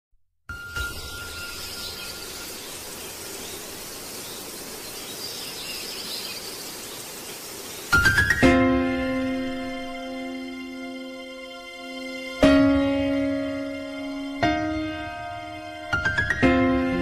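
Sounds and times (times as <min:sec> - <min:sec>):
background hiss: 0:00.5 - 0:17.0
background music with held chords: 0:08.0 - 0:17.0.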